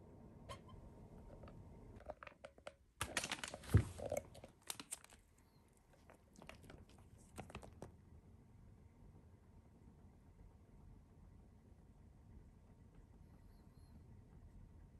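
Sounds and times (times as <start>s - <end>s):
plastic bag crinkling: 3.0s - 5.3s.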